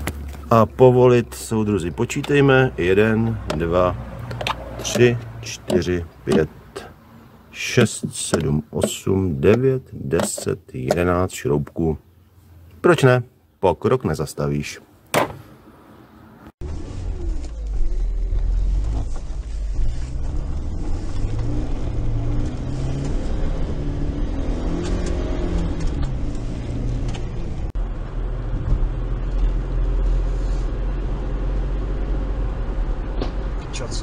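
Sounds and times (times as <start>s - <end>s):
road noise inside car: 0.0s - 11.1s, 15.6s - 34.0s
car engine revving: 16.6s - 34.0s.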